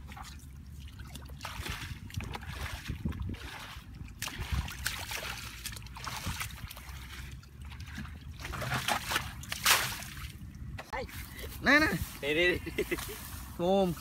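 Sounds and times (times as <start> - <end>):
water splashing from bucket: 0.0 - 10.4.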